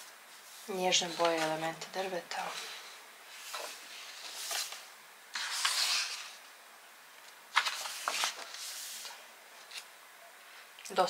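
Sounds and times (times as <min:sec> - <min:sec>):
book pages rustling: 0:00.0 - 0:01.7, 0:02.3 - 0:06.4, 0:07.2 - 0:09.9
page flick: 0:07.5 - 0:08.7.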